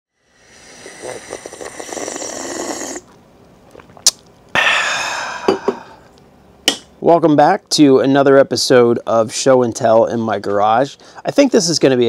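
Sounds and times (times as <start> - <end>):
breathy exhale: 0.2 - 3.0, 4.6 - 6.1
man slurping a drink: 0.3 - 4.2.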